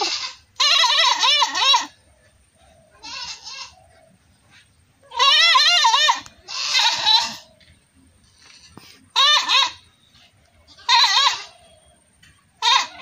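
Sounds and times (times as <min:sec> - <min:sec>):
goat bleating: 0:00.0 - 0:02.0, 0:02.9 - 0:04.0, 0:05.0 - 0:07.6, 0:09.1 - 0:10.0, 0:10.7 - 0:11.7, 0:12.6 - 0:13.0.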